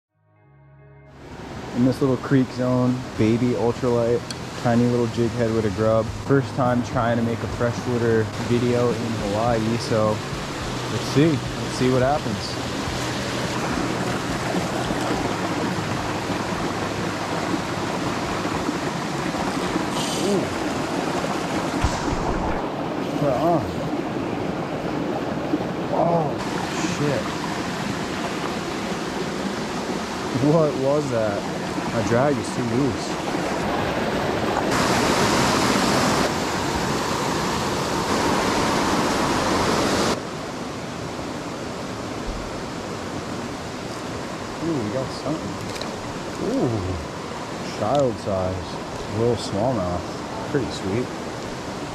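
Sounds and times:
creek water rushing over stones: 0:01.2 - 0:51.9.

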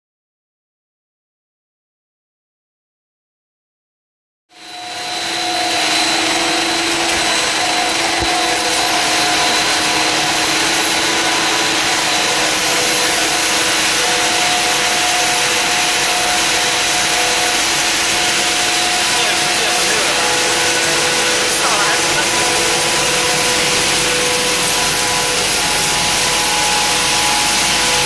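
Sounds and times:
machine drone: 0:04.5 - 0:28.0
motors and fans whirring: 0:04.5 - 0:28.0
whining tones: 0:04.6 - 0:28.0.

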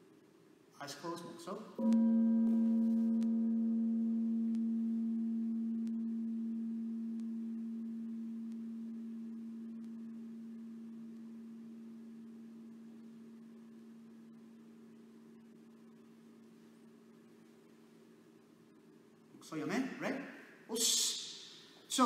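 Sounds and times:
meditation bell ringing: 0:01.8 - 0:16.5.

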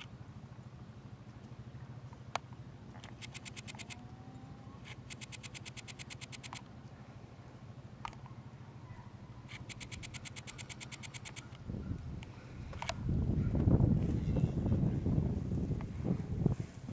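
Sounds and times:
atv engine idling: 0:00.0 - 0:16.8
rapid clicking trills: 0:02.3 - 0:04.2, 0:04.8 - 0:06.7, 0:09.4 - 0:11.6.

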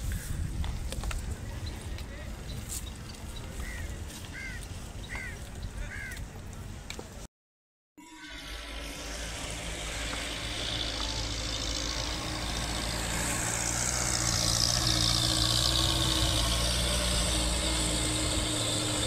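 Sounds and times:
truck engine running: 0:08.4 - 0:19.0.

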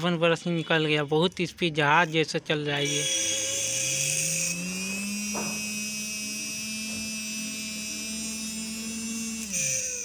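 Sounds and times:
electric motor whining: 0:02.0 - 0:10.0.

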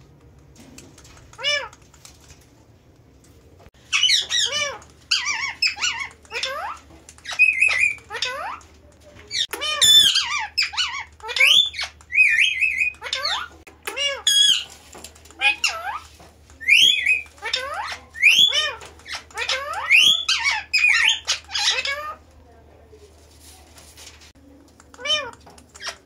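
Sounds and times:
parakeets squawking and chirping: 0:03.8 - 0:08.7, 0:09.3 - 0:22.2, 0:25.0 - 0:26.0.

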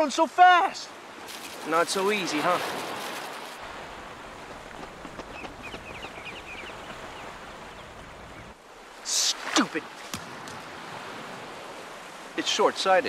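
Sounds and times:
surf noise: 0:00.0 - 0:13.0
high bird chirps: 0:05.3 - 0:08.5.

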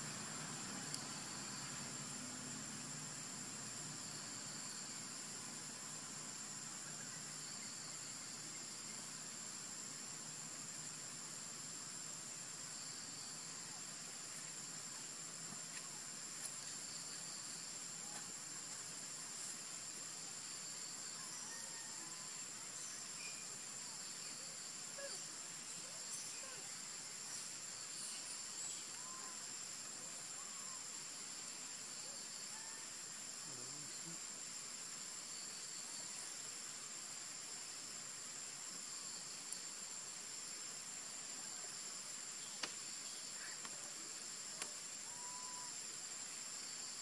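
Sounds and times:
insects droning: 0:00.0 - 0:47.0
low outdoor hiss: 0:00.0 - 0:47.0
faint clicks: 0:44.6 - 0:44.8.

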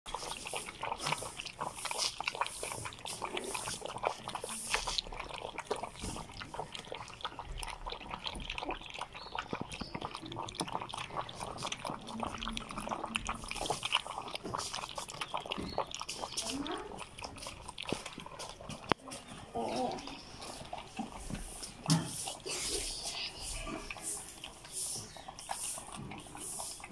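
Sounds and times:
puppies lapping milk: 0:00.1 - 0:26.9.

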